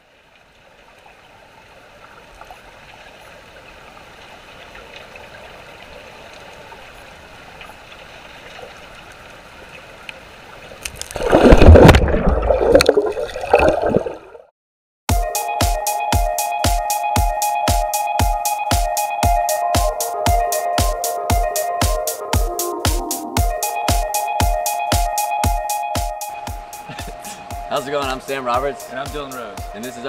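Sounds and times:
underwater flowing water: 0.0s - 14.5s
rushing bubbles gurgling: 11.0s - 14.5s
electronic music with steady beat: 15.1s - 30.0s.

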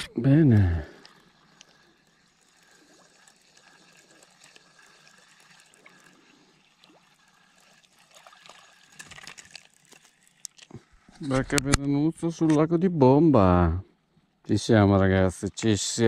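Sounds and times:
fishing reel whirring and ticking: 0.7s - 10.6s
reel clicks: 1.0s - 5.6s.

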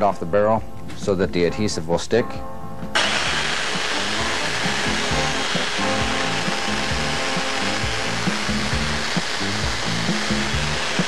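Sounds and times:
background music: 0.0s - 11.0s
power tool running: 3.0s - 11.0s.

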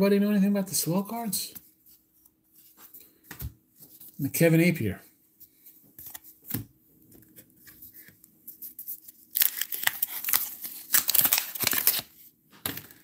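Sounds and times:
wax paper wrapper tearing: 9.0s - 12.2s.

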